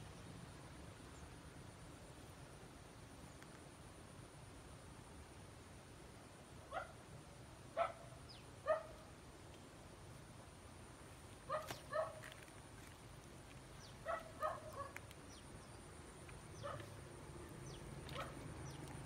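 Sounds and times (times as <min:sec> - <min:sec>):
dog barking: 0:06.7 - 0:07.0, 0:07.8 - 0:09.0, 0:11.5 - 0:12.2, 0:14.0 - 0:15.0, 0:16.6 - 0:17.0, 0:18.1 - 0:18.4.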